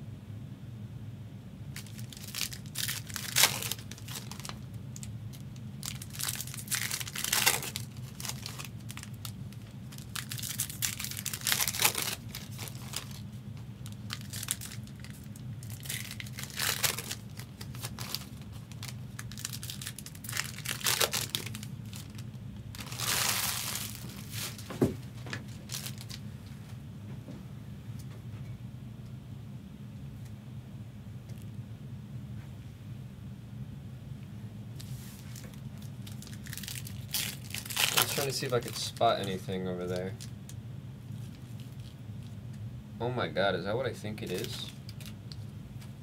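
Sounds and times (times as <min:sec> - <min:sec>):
steady low hum: 0:00.0 - 0:46.0
card packs crinkling: 0:01.8 - 0:26.2, 0:34.8 - 0:40.5, 0:41.1 - 0:42.4, 0:44.1 - 0:46.0.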